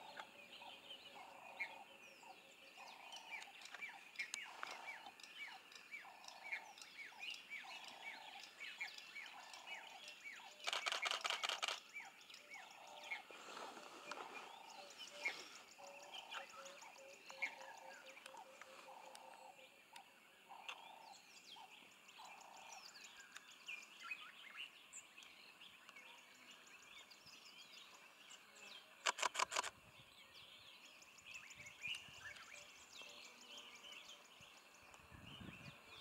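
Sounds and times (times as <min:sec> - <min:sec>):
faint bird chirps: 0:00.0 - 0:36.0
loud clicks: 0:29.0 - 0:29.7.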